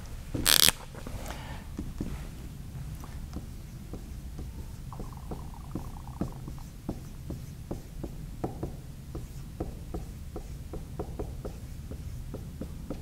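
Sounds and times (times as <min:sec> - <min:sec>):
low room hum: 0:00.0 - 0:13.0
marker writing on whiteboard: 0:02.8 - 0:13.0.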